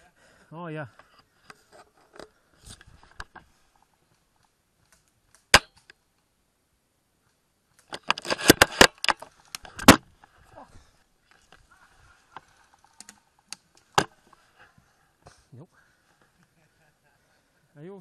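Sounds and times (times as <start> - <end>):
flurry of clicks and cracks: 1.0 - 6.3, 7.2 - 10.4, 11.2 - 15.4.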